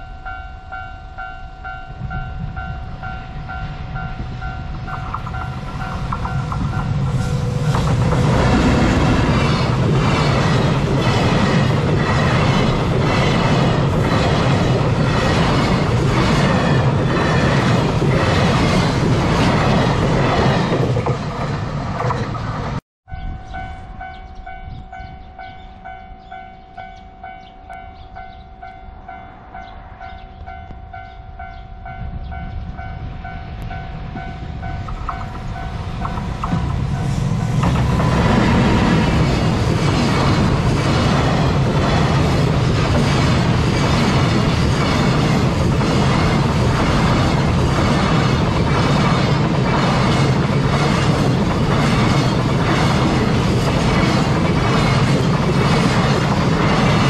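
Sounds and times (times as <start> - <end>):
level crossing warning bell: 0.0 - 8.6, 23.1 - 36.0
train wheels clattering over rail joints: 4.8 - 22.8, 34.8 - 57.0.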